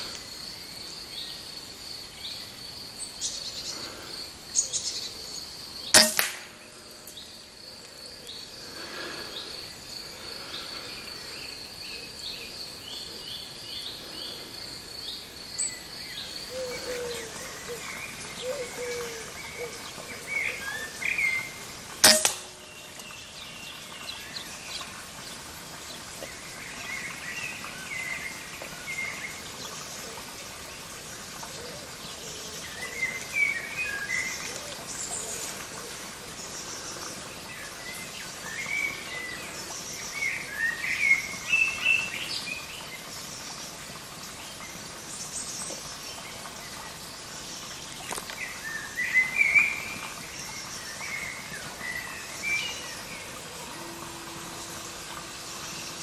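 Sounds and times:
air rifle shot: 6.0s - 6.7s.

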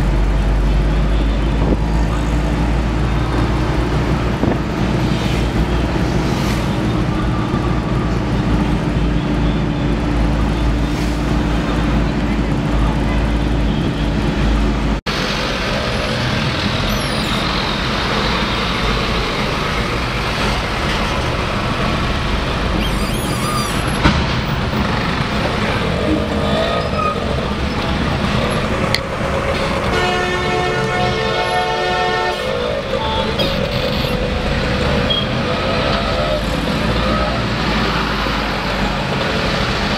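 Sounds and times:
road traffic from inside car: 0.0s - 39.9s
vehicle horn blast: 29.9s - 33.6s.

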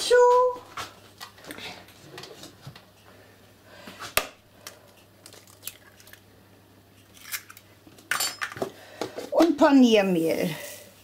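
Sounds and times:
eggshell crackling: 4.7s - 6.4s.

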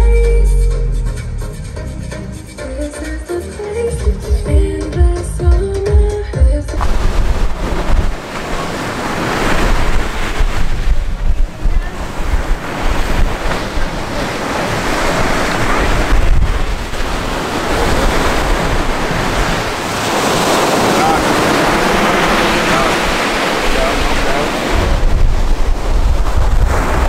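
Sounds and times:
surf washing onto a beach: 6.8s - 27.0s
wind buffeting the microphone: 6.8s - 27.0s.

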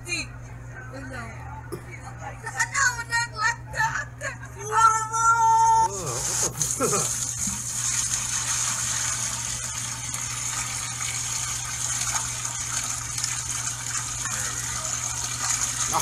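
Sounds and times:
liquid pouring into cup: 6.1s - 16.0s.

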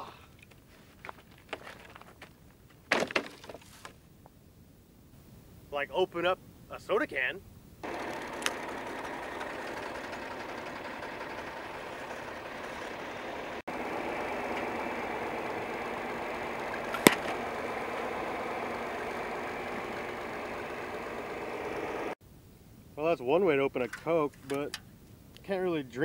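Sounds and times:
tractor engine running: 7.8s - 22.2s.

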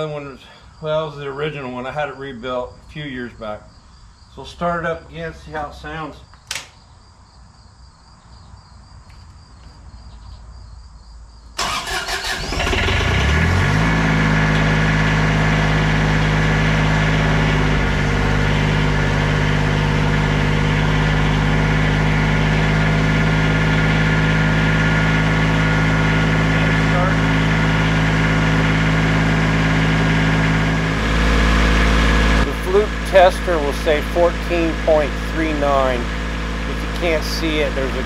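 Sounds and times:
engine running steadily: 11.6s - 38.0s
starter motor cranking engine: 11.6s - 38.0s.

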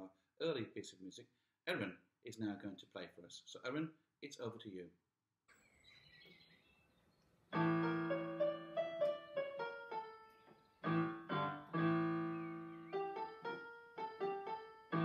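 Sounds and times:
electronic keyboard piano melody: 7.5s - 15.0s.

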